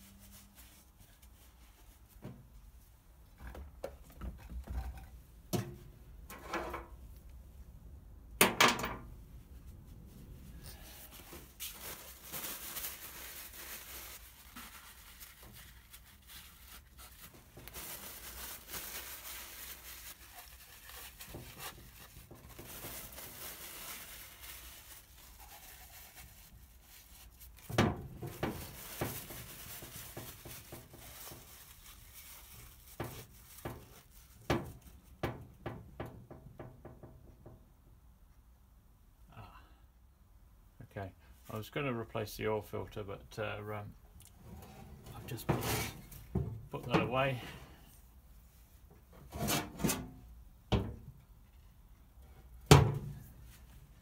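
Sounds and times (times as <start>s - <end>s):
paper towel and tape rustling: 0.0s - 3.0s, 9.6s - 35.3s, 44.4s - 50.3s, 53.0s - 54.0s.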